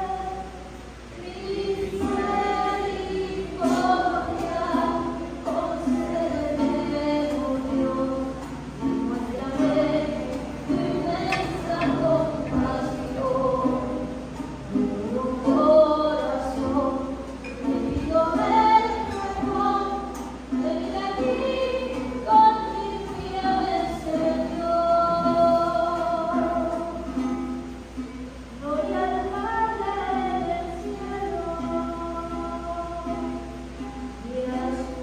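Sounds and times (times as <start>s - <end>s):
voices singing a hymn: 0.0s - 27.8s, 28.5s - 35.0s
guitar accompaniment: 0.0s - 35.0s.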